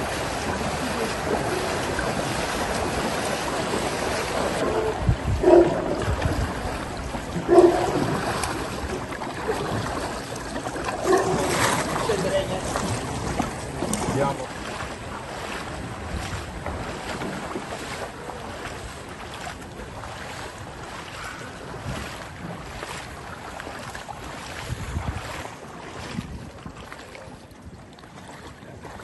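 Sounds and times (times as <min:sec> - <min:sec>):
floodwater splashing: 0:00.0 - 0:29.0
wind noise on microphone: 0:04.4 - 0:09.1, 0:15.6 - 0:17.6, 0:24.4 - 0:27.0.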